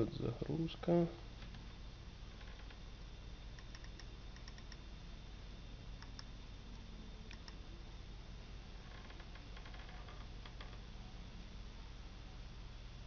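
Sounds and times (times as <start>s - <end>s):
steady low hum: 0.0s - 13.0s
faint light clicks: 6.0s - 7.6s.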